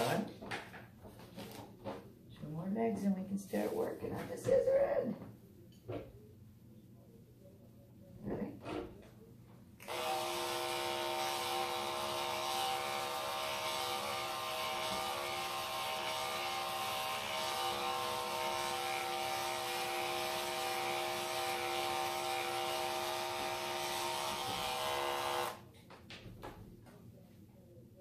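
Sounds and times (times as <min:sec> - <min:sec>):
electric clippers buzzing: 0:00.0 - 0:00.3, 0:09.8 - 0:25.6.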